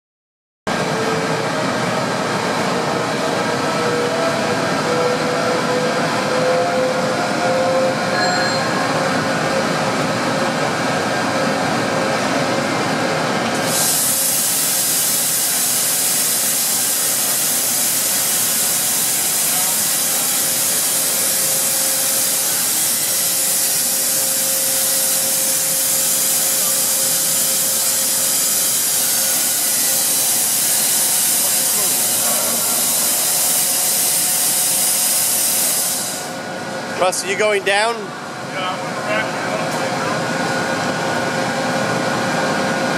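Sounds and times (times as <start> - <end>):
lathe machine whine: 0.7 - 42.9
loud steady hiss: 13.6 - 36.5.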